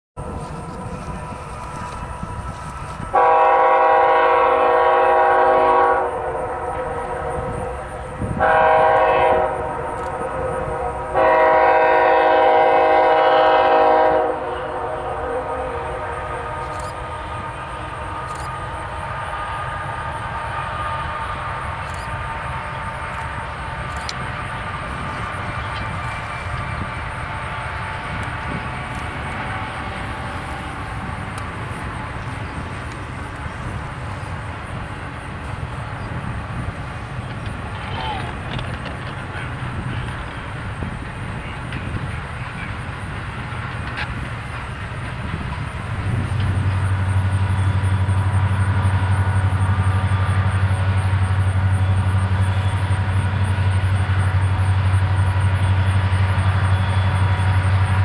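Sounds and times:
low diesel locomotive drone: 0:00.1 - 0:58.0
distant freight train rumbling: 0:00.2 - 0:58.0.

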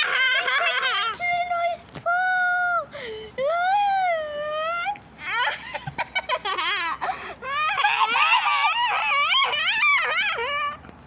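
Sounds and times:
child fake crying: 0:06.5 - 0:10.8.

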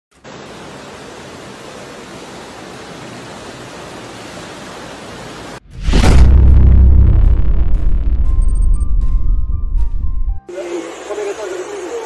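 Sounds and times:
floodwater rushing: 0:00.2 - 0:05.6.

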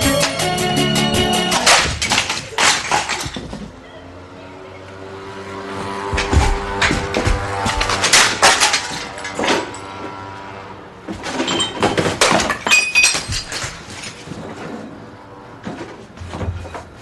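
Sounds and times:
crashes and clattering knocks: 0:01.5 - 0:03.8, 0:06.1 - 0:10.0, 0:11.0 - 0:14.6
something breaking: 0:01.5 - 0:03.8, 0:06.2 - 0:09.8, 0:11.1 - 0:14.6.

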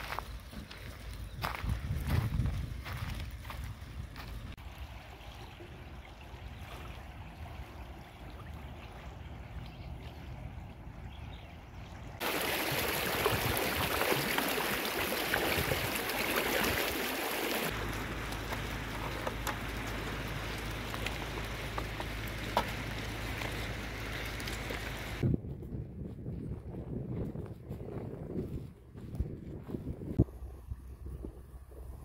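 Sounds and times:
wind rumble on microphone: 0:00.0 - 0:04.6, 0:06.4 - 0:14.0, 0:23.4 - 0:32.0
rushing canal water: 0:04.5 - 0:25.2
goat hooves clicking on stones: 0:17.7 - 0:25.2.

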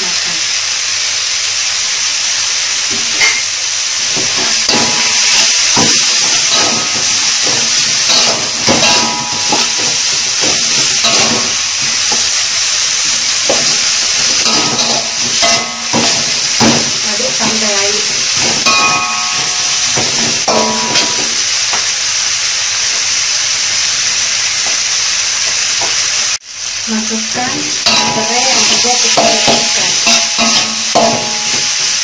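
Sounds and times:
onions sizzling in oil: 0:00.0 - 0:32.0
metal spatula scraping wok: 0:04.3 - 0:12.3, 0:13.2 - 0:21.3, 0:27.8 - 0:31.9.

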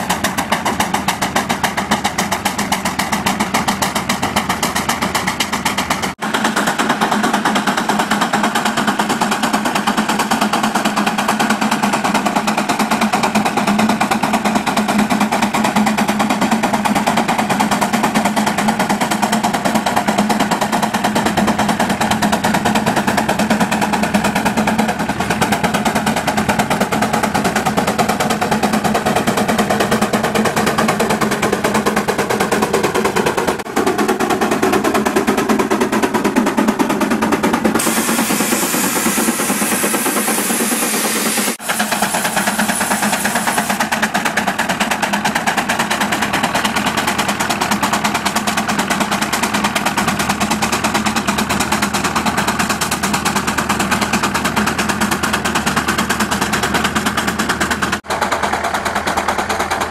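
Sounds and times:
steam engine exhaust chuffing: 0:00.0 - 0:59.9
high steam hiss: 0:37.8 - 0:44.0.

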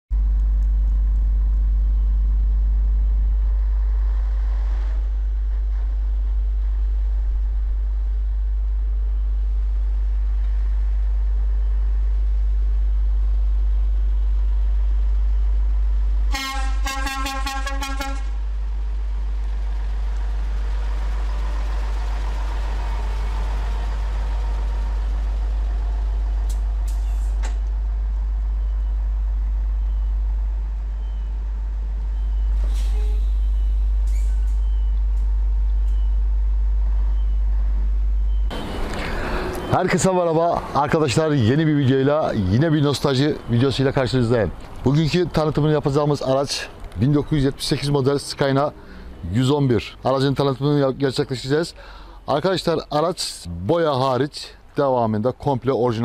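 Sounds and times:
truck diesel engine rumble: 0:00.1 - 0:56.0
truck horn toots: 0:16.3 - 0:18.5.

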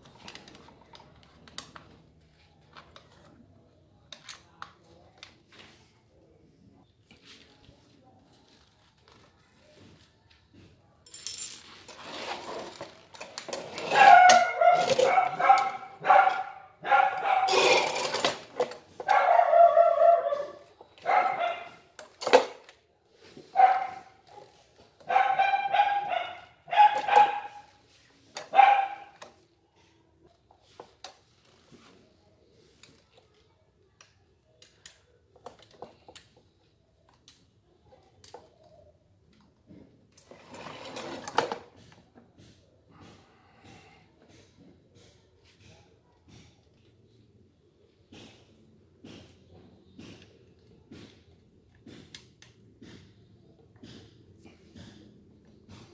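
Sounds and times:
dog barking: 0:13.9 - 0:17.6, 0:19.0 - 0:21.9, 0:23.6 - 0:24.5, 0:25.1 - 0:27.7, 0:28.5 - 0:29.2.

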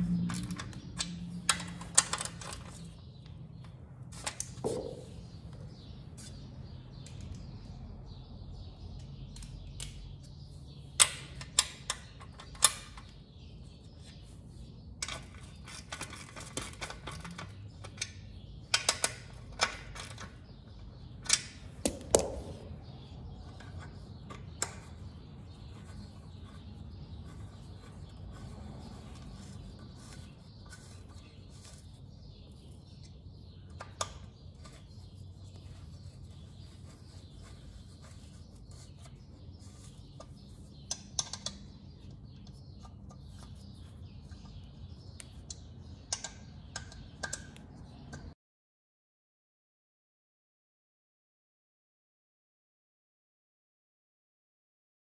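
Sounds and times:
steady low hum: 0:00.0 - 0:04.0
metallic clicks and knocks: 0:00.1 - 0:02.9, 0:40.2 - 0:41.8, 0:45.2 - 0:48.3.

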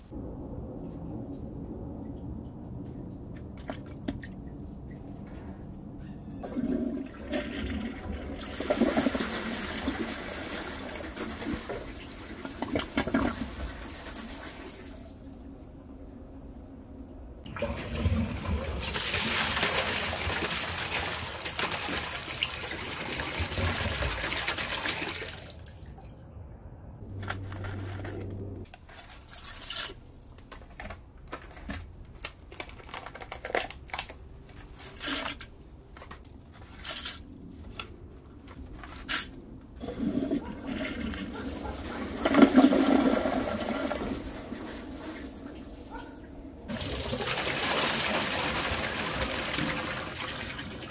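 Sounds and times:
toilet flushing: 0:06.4 - 0:15.2, 0:17.4 - 0:25.6, 0:39.8 - 0:45.9, 0:46.7 - 0:50.9.

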